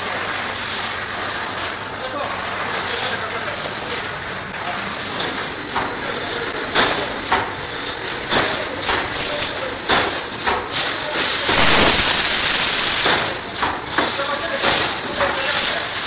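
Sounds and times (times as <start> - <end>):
steady hiss: 0.0 - 16.0
welding machine metallic knocks: 5.3 - 16.0.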